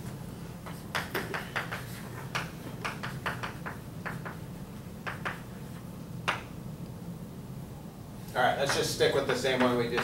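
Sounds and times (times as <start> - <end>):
low room hum: 0.0 - 10.0
chalk tapping on a chalkboard: 0.6 - 4.4, 5.0 - 5.5, 8.6 - 8.9, 9.5 - 10.0.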